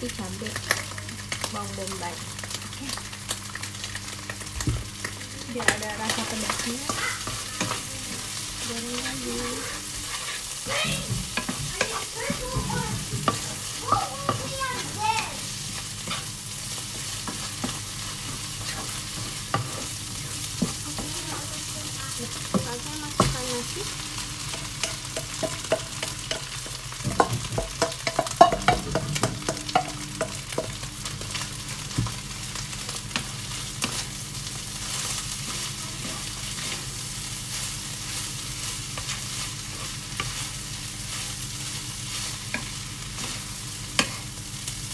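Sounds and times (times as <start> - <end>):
food sizzling in a pan: 0.0 - 44.9
wooden spatula scraping and knocking: 9.0 - 14.9.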